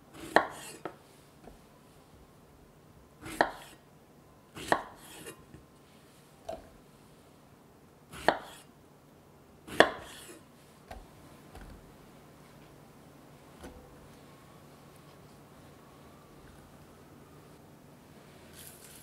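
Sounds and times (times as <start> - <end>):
knife cutting strawberries: 8.1 - 8.7.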